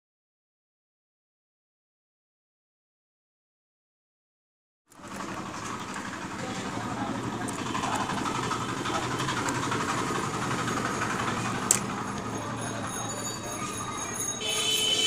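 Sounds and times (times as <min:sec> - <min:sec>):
traffic rumble: 0:04.9 - 0:15.0.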